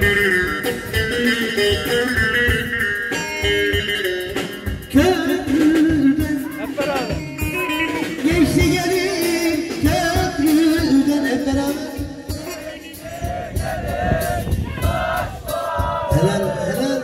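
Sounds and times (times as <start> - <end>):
steady drum beat: 0.0 - 17.0
man singing folk melody: 4.9 - 7.2, 8.0 - 12.9.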